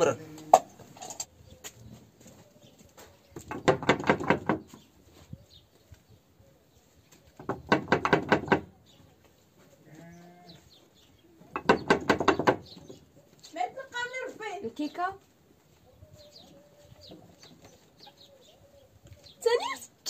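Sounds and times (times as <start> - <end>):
sheep bleating: 9.8 - 10.6.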